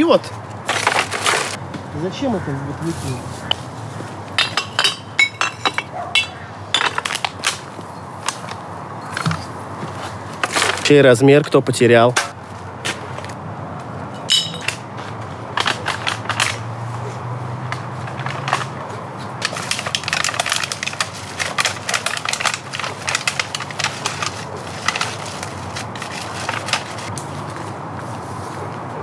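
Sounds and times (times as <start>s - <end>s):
bottles and cans clattering: 0.7s - 1.6s, 4.4s - 7.7s, 14.2s - 14.8s, 19.4s - 27.1s
plastic bag rustling: 0.7s - 1.6s, 19.4s - 27.6s.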